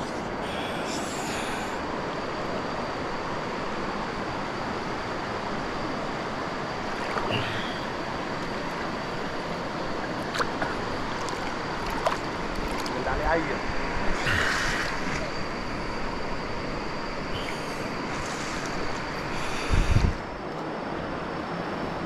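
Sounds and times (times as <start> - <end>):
river water washing: 1.6 - 19.5
small water splashes: 10.0 - 13.0
wind on microphone: 19.4 - 20.4.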